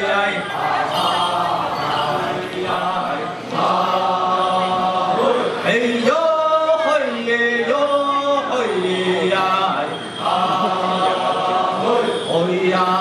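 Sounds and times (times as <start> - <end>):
men chanting a dance song: 0.0 - 13.0.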